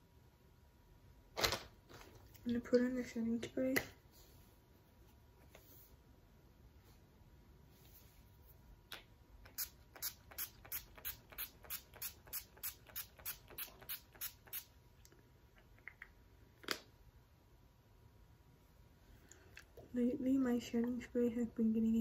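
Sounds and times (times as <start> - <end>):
spray bottle hissing sprays: 9.5 - 14.7.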